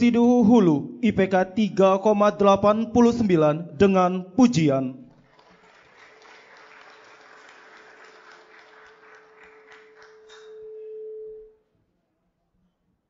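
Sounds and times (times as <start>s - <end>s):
audience applause: 5.2s - 10.6s.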